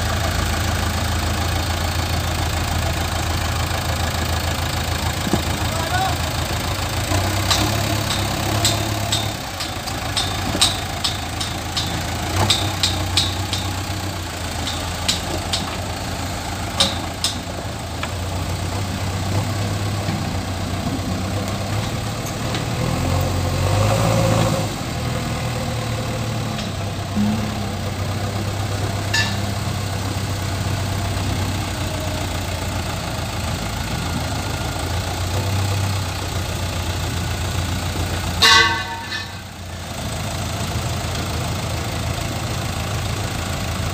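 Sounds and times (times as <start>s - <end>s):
diesel engine running: 0.0s - 43.9s
metallic clicks and clanks: 7.1s - 15.9s, 16.7s - 18.2s, 28.8s - 29.7s.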